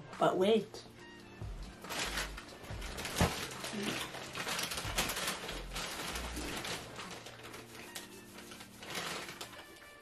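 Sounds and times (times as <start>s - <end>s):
plastic snack bag rustling: 1.7s - 10.0s
chips crackling and crunching: 1.8s - 10.0s.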